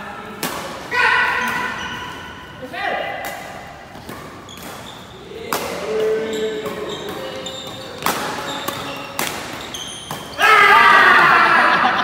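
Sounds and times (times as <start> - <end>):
racket hitting shuttlecock: 0.4 - 2.3, 3.1 - 10.4
shoes squeaking: 0.8 - 2.7, 3.3 - 10.7.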